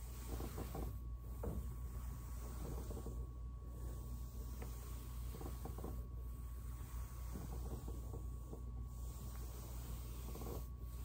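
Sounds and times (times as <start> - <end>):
foam roller rubbing on carpet: 0.0 - 11.0
steady low hum: 0.0 - 11.0.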